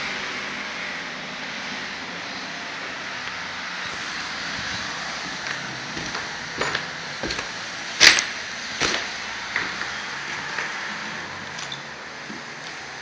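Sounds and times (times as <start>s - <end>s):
footsteps on debris: 4.7s - 10.0s.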